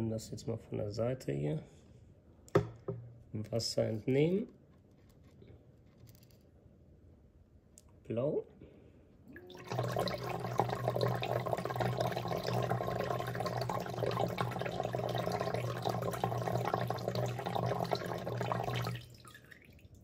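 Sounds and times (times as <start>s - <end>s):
water splashing and trickling: 9.3s - 20.0s
pump humming: 9.4s - 19.6s.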